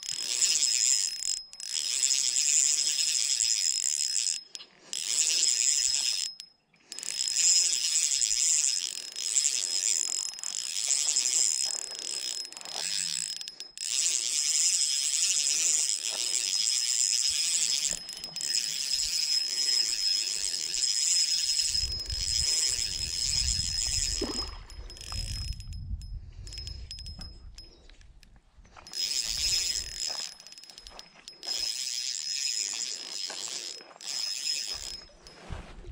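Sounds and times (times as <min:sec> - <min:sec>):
fishing reel cranked whirring: 0:00.0 - 0:35.5.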